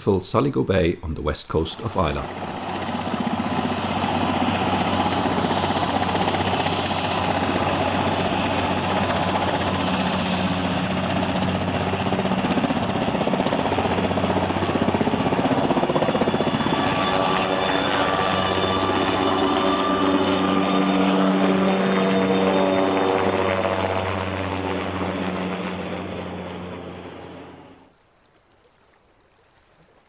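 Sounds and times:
drone propellers buzzing: 17.6 - 27.9.

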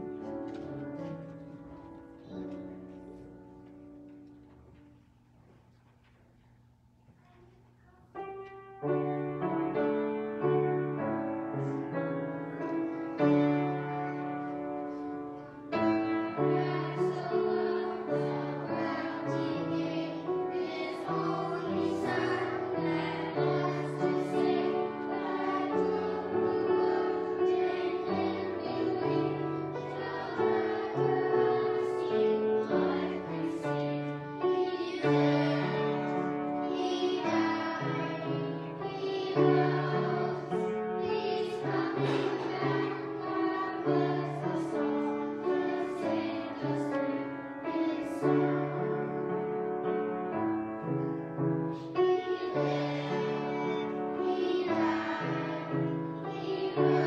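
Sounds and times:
piano accompaniment: 0.0 - 5.0, 8.1 - 57.0
children singing: 11.1 - 49.7, 51.7 - 57.0.

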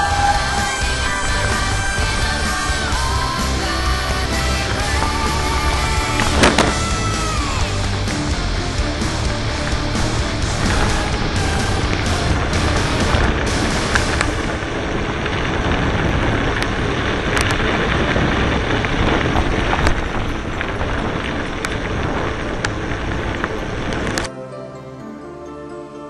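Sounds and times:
tyres rumbling on gravel: 0.0 - 24.3
wind buffeting microphone: 0.0 - 24.3
bike clicks and rattles: 12.9 - 24.3.

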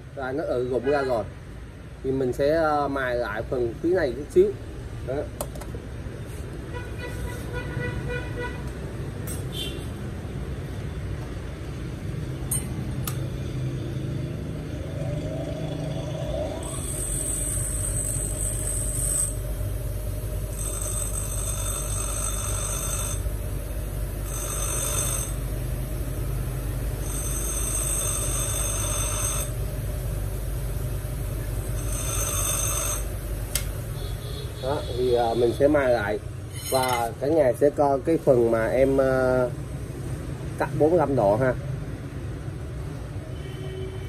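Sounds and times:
bench grinder motor hum: 14.8 - 19.5, 20.5 - 23.3, 24.2 - 25.6, 26.9 - 29.6, 31.6 - 33.2
steel bar grinding hiss: 16.2 - 19.4, 31.7 - 33.1.

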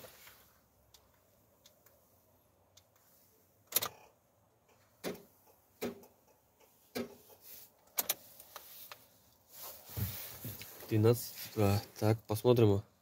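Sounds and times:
clicks and knocks in truck cab: 4.7 - 7.3.

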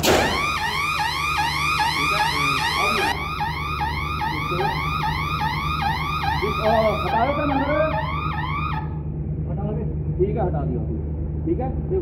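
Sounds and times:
electronic alarm hooter wailing: 0.0 - 9.1.

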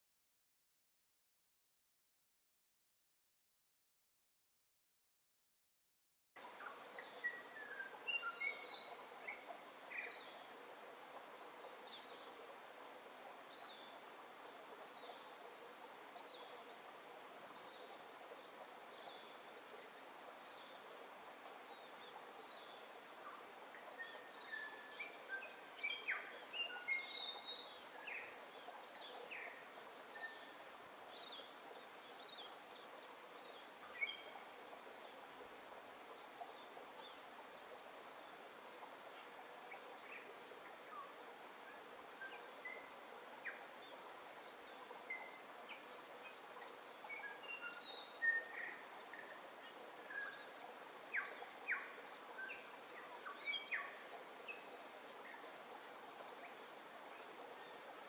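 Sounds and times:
faint steady hiss: 6.4 - 58.0
flurry of bird chirps: 6.5 - 10.5, 18.9 - 35.2, 39.1 - 58.0
bird chirping: 6.6 - 10.4.

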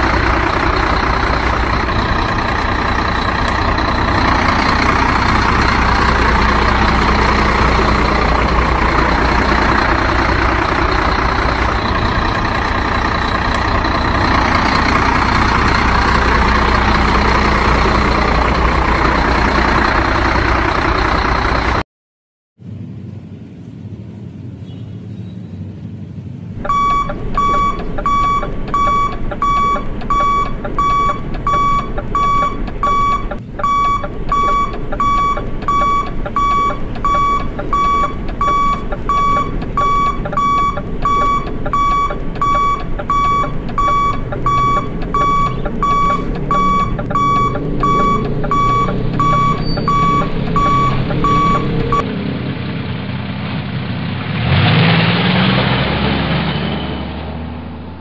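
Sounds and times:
toy truck reversing beeper: 26.6 - 52.0.

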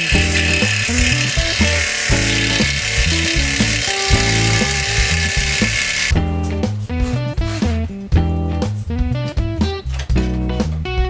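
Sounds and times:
scroll saw cutting plywood: 0.0 - 6.1
background music: 0.0 - 11.0.

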